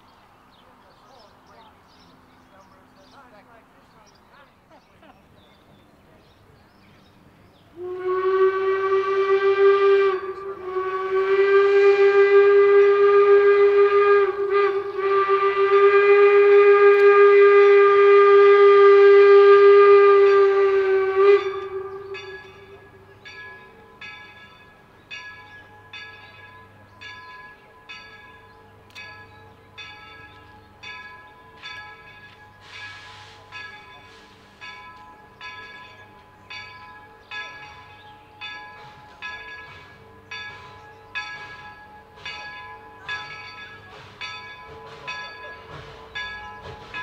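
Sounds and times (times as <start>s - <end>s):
steam locomotive whistle: 7.7s - 24.1s, 28.5s - 36.3s, 37.0s - 47.0s
locomotive bell ringing: 16.1s - 47.0s.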